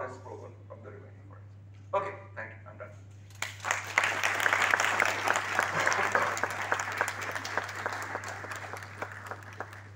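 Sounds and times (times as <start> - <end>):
audience applauding: 3.4 - 9.9.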